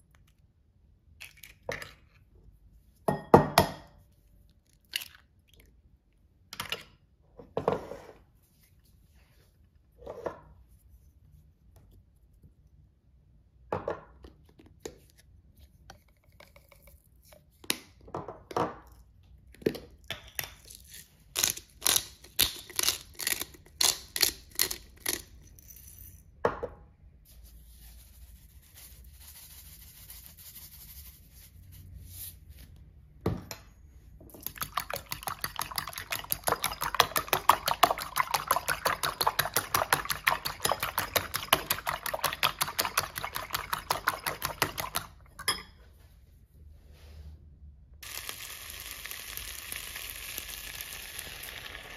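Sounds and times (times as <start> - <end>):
fork beating eggs in bowl: 34.3 - 45.6.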